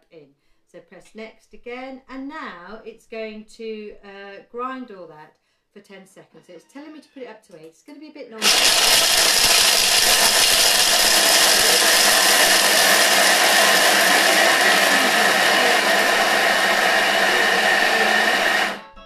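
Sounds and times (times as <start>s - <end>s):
food processor whirring: 8.4s - 18.8s.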